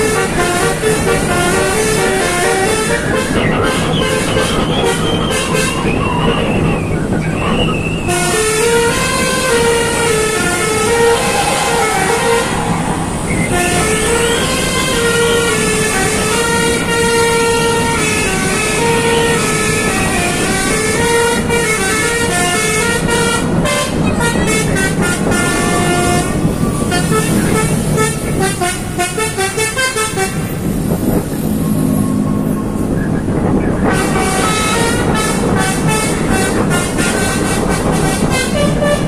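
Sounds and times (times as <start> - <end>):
musical air horn melody: 0.0 - 5.7, 8.1 - 30.4, 33.9 - 39.0
low engine rumble: 0.0 - 29.0.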